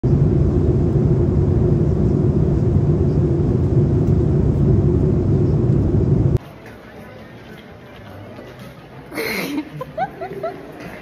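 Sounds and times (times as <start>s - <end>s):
airliner cabin rumble: 0.0s - 6.4s.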